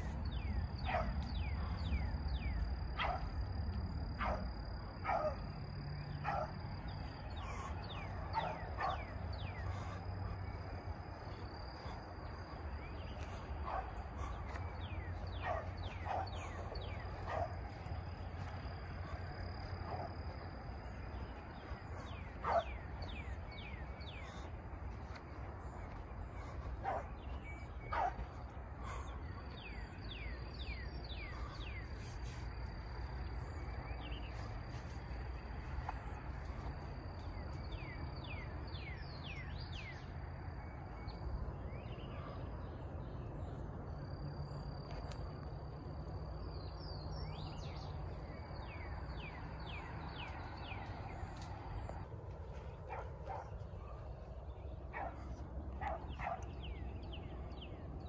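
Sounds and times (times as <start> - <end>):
cricket trill: 0.0 - 58.0
dog barking and baying: 0.8 - 3.4, 4.2 - 6.7, 7.3 - 10.6, 13.2 - 20.4, 21.6 - 24.5, 26.4 - 29.6, 52.8 - 54.1, 54.9 - 56.5.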